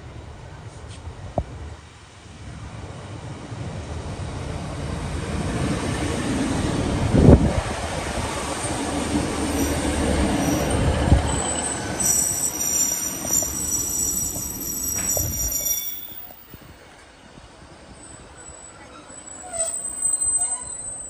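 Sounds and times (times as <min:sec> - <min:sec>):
diesel train passing: 0:00.0 - 0:21.0
wheel and brake squeal: 0:09.5 - 0:16.7, 0:17.6 - 0:21.0.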